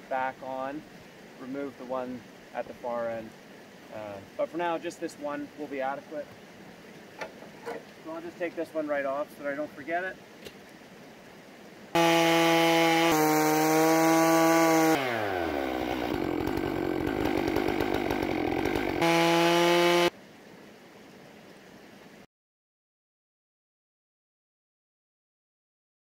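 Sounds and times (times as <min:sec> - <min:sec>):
chainsaw cutting log: 0:12.0 - 0:20.1.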